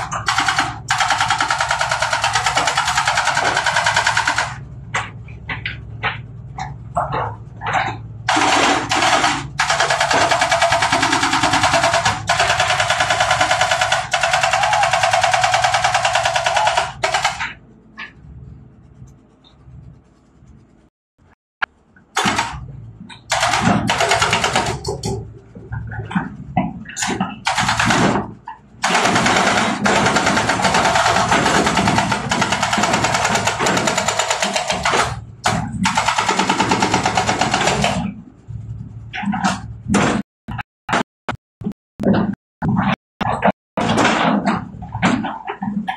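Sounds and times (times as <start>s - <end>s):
excavator engine rumbling: 2.0s - 12.6s, 16.6s - 27.5s
hydraulic breaker hammering rock: 23.2s - 25.2s, 25.9s - 38.1s.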